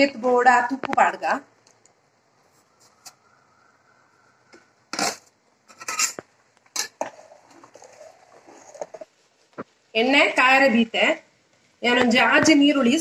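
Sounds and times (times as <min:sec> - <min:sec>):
metal pots and utensils clattering: 0:04.9 - 0:09.1.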